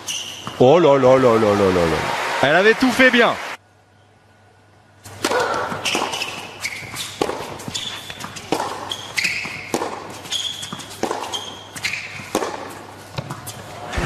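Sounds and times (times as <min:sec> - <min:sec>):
shoes squeaking on court: 0:00.0 - 0:00.8, 0:05.1 - 0:13.9
tennis ball hits and bounces: 0:05.1 - 0:13.7.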